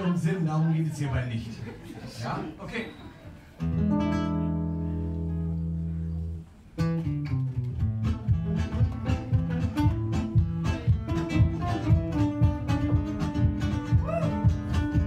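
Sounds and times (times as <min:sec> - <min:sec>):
acoustic guitars playing: 0:03.3 - 0:15.0.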